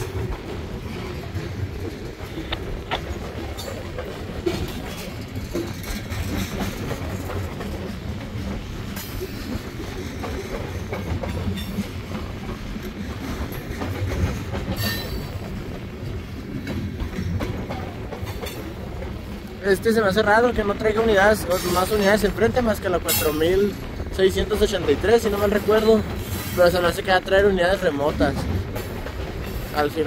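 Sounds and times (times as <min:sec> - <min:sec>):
sharp clicks and clanks: 0:00.0 - 0:19.2
freight train rolling past: 0:00.0 - 0:30.0.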